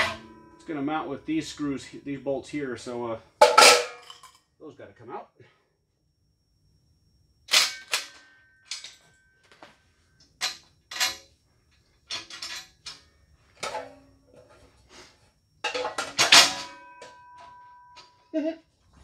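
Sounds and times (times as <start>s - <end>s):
metallic clanks and knocks: 0.0s - 0.8s, 12.1s - 13.0s, 13.6s - 14.6s, 15.6s - 18.2s.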